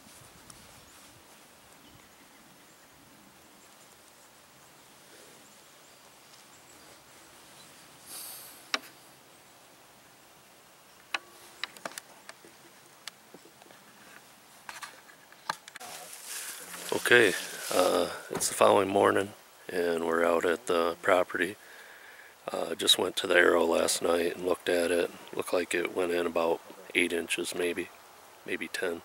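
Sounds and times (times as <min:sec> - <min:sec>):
faint woodland hiss: 0:00.0 - 0:29.0
clothing rustle: 0:13.7 - 0:18.2.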